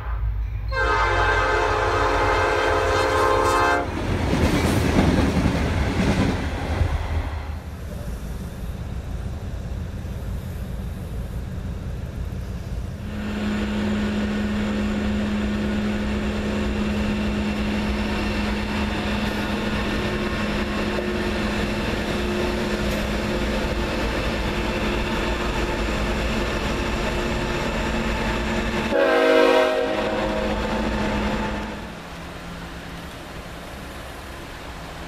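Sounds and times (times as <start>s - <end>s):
locomotive engine drone: 0.0s - 35.0s.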